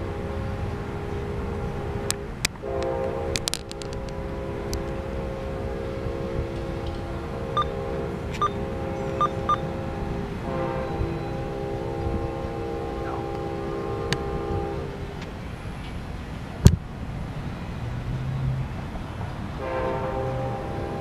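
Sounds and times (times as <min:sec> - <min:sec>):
train horn chord: 0:00.0 - 0:15.1, 0:19.6 - 0:21.0.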